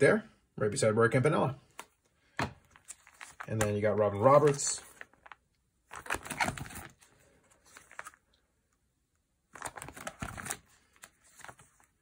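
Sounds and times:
plastic binder page crinkling: 2.6 - 8.4, 9.5 - 12.0.

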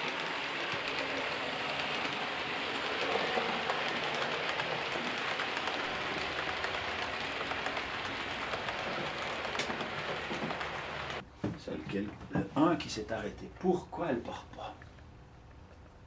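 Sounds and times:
model train wheels rattling: 0.0 - 11.2.

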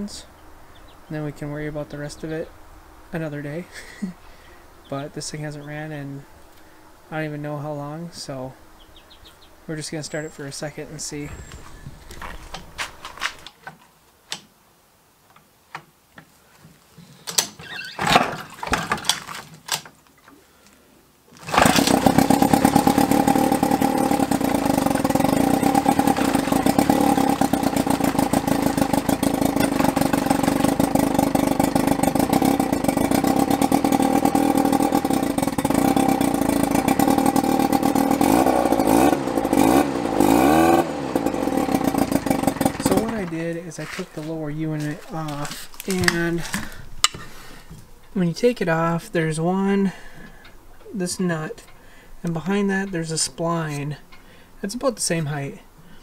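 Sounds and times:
propeller churning water: 21.4 - 43.4
outboard motor running: 21.4 - 47.6.

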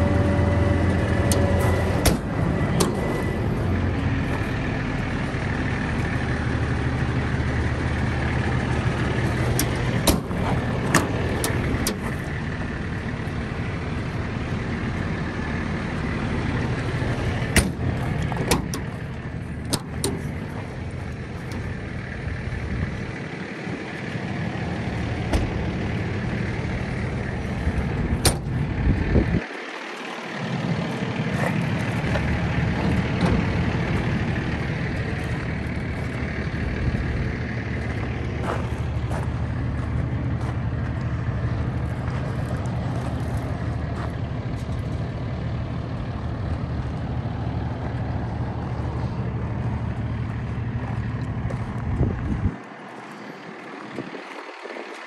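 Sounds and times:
truck engine idling: 0.0 - 55.0
sharp clicks and knocks: 9.4 - 12.2, 17.5 - 20.6, 28.2 - 28.6.

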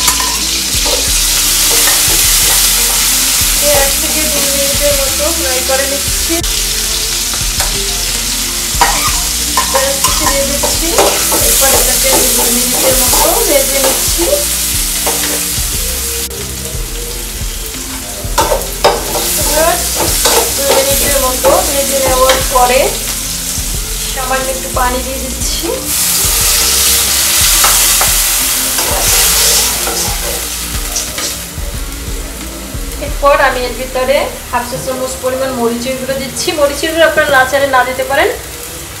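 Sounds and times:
food sizzling in hot oil: 0.0 - 39.0
metal spatula scraping pan: 8.8 - 15.6, 27.6 - 31.4.

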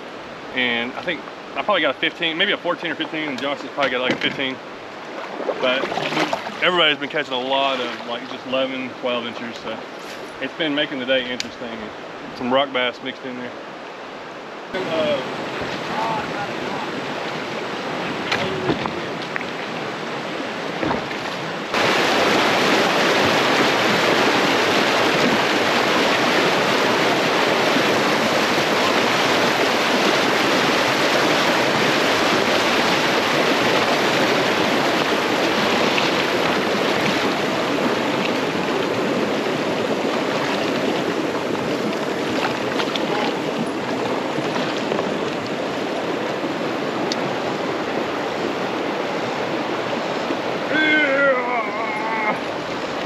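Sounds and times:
creek water rushing over rocks: 0.0 - 53.0
short knocks: 20.8 - 21.3.

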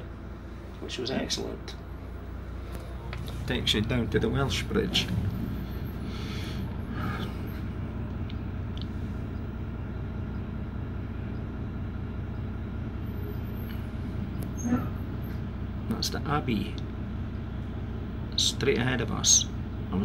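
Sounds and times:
bus engine running: 0.0 - 20.0.

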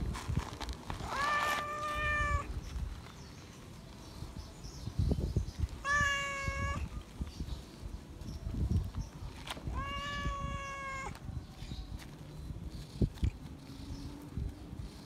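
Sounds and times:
cat meowing loudly: 1.0 - 2.5, 5.8 - 6.9, 9.6 - 11.2.

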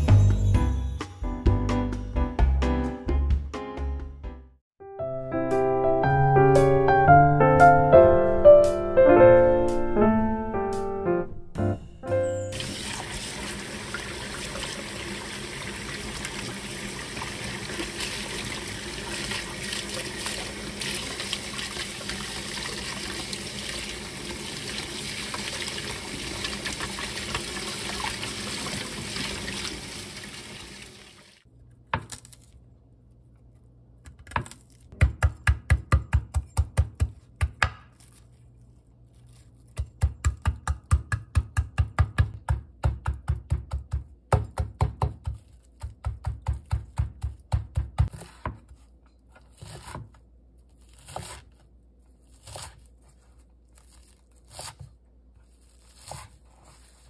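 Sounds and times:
tap water running into steel sink: 12.6 - 31.4
knife chopping on wooden board: 34.2 - 38.0, 39.7 - 48.8.

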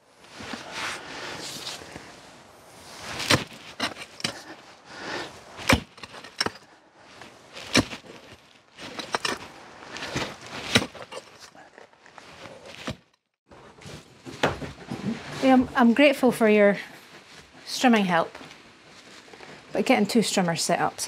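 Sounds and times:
rustling: 0.1 - 21.0
sharp knocks and crunches: 3.0 - 4.6, 5.6 - 15.8.

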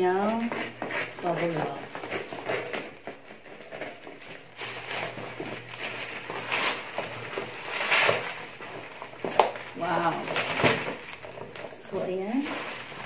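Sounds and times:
bubble wrap crinkling: 0.0 - 13.0
scissors cutting bubble wrap: 0.0 - 13.0.

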